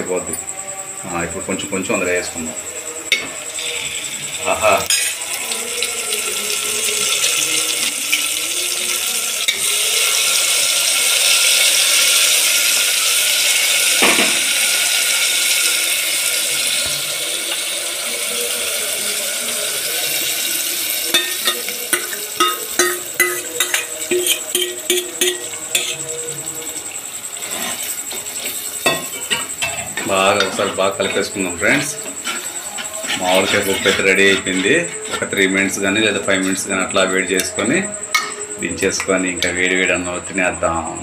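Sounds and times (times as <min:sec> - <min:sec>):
food sizzling in hot oil: 0:02.8 - 0:38.5
ladle stirring metal pot: 0:21.1 - 0:26.0, 0:27.4 - 0:36.8.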